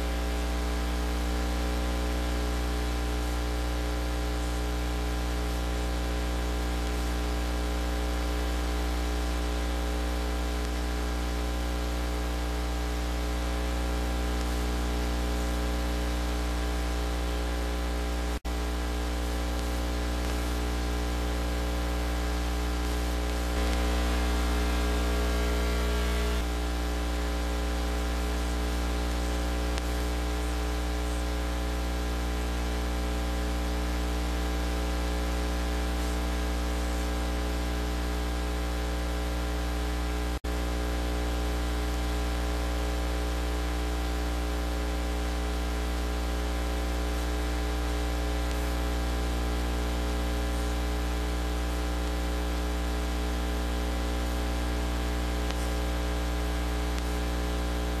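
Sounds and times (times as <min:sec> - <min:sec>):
static hiss: 0:12.3 - 0:37.1, 0:52.5 - 0:58.0
electrical hum: 0:17.9 - 0:33.1.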